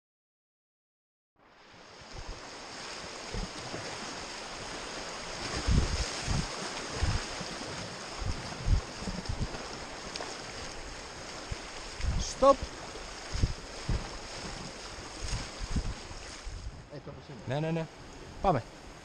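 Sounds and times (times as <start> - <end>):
river water rushing over rapids: 1.6 - 19.0
low thumps: 13.3 - 14.2.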